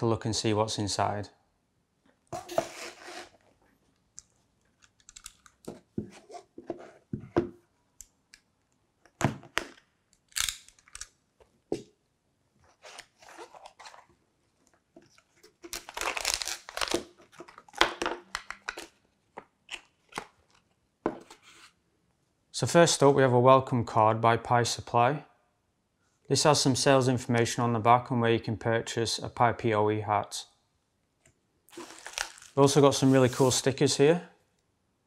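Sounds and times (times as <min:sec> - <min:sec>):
packing rustling and crinkling: 0:31.7 - 0:33.6.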